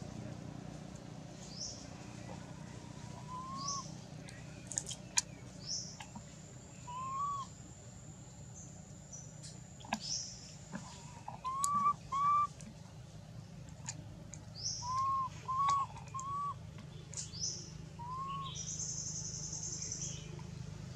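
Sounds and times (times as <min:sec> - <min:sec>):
short whistled calls: 0:03.2 - 0:03.9, 0:06.8 - 0:07.5, 0:11.3 - 0:12.5, 0:14.6 - 0:16.6, 0:17.2 - 0:20.1.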